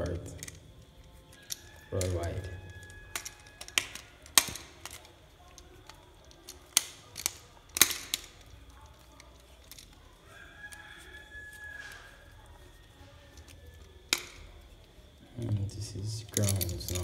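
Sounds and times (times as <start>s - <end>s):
screwdriver clicking on metal screws: 0.4s - 10.1s
distant rooster crowing: 1.3s - 4.2s, 10.1s - 14.6s.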